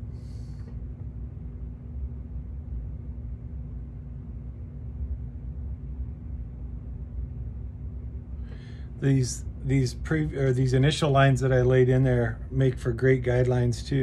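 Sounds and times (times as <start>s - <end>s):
faint breath: 0.0s - 0.9s, 8.4s - 9.0s
low droning room hum: 0.0s - 14.0s.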